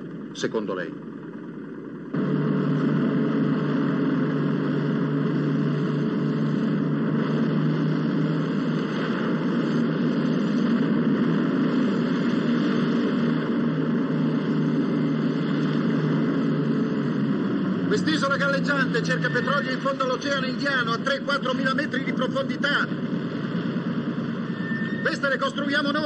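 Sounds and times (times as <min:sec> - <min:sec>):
motorboat engine running: 0:01.2 - 0:19.7.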